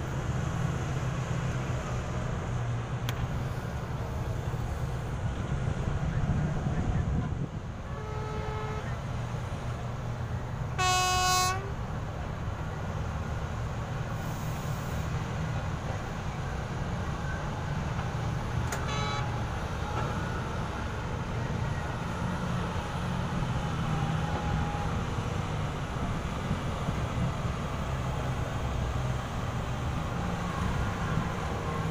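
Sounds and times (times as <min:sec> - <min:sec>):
low engine rumble: 0:00.0 - 0:31.9
vehicle horn honking: 0:07.9 - 0:09.0, 0:10.8 - 0:11.7, 0:18.8 - 0:19.3.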